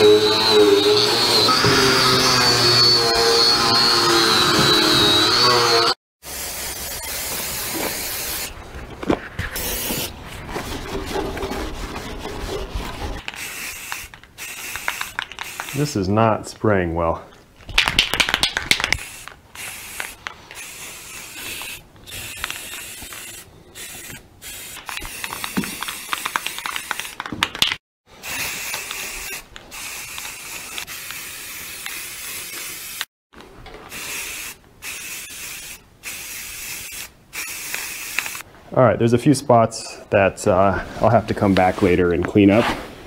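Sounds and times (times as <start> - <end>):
aerosol can spraying: 6.2 - 8.5, 13.3 - 15.8, 18.0 - 27.3, 28.2 - 33.1, 33.9 - 38.4.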